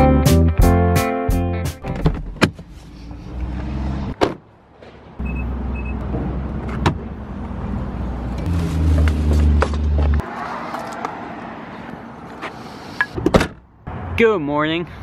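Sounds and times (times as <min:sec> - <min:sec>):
short high beeps: 0:05.2 - 0:06.0.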